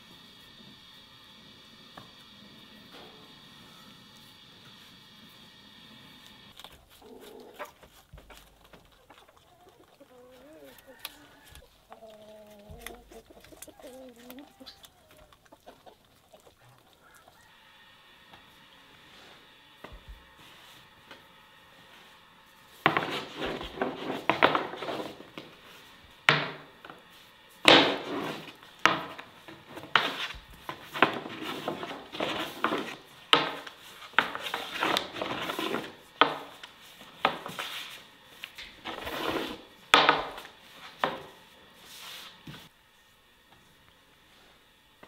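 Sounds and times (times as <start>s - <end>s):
rubbing and scraping on wood: 21.8s - 42.8s.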